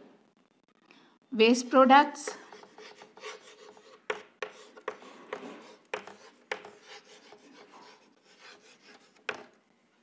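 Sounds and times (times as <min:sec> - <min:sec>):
chalk scratching on chalkboard: 0:02.3 - 0:09.5
chalk tapping on board: 0:02.3 - 0:09.6.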